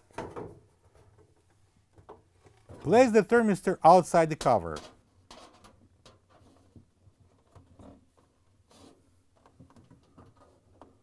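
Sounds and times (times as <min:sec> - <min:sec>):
faint rubbing of plastic cover: 0:05.3 - 0:11.0.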